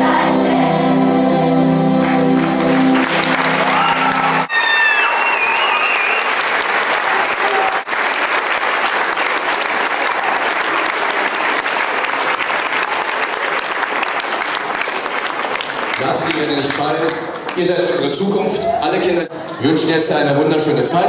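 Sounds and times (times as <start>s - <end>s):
audience applauding: 2.0s - 17.8s
high cheers: 3.1s - 14.2s.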